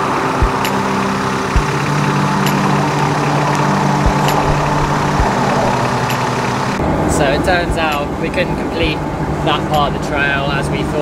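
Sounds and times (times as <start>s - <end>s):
engine idling: 0.0s - 6.8s.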